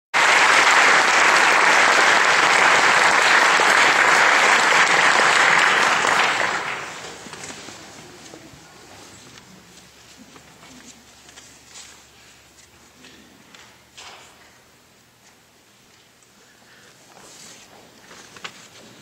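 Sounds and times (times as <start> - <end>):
audience applauding: 0.1 - 7.4.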